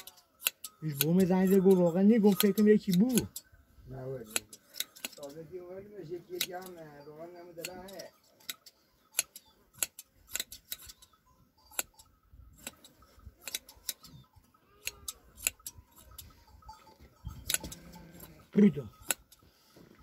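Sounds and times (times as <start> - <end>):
hand shears snipping: 0.0 - 3.4, 4.2 - 5.3, 6.3 - 6.8, 7.6 - 11.1, 12.6 - 14.1, 14.8 - 16.2, 19.0 - 19.4.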